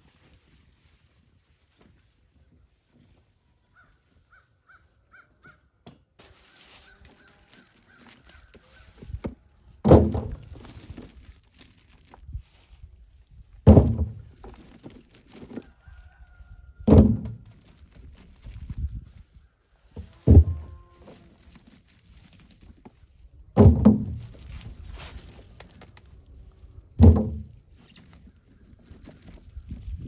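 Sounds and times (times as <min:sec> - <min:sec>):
corn ears clattering: 0:06.2 - 0:19.2, 0:19.8 - 0:30.0
corn thudding into plastic barrel: 0:09.0 - 0:12.2, 0:13.6 - 0:15.6, 0:16.8 - 0:18.2, 0:20.0 - 0:21.2, 0:23.6 - 0:25.8, 0:27.0 - 0:27.7.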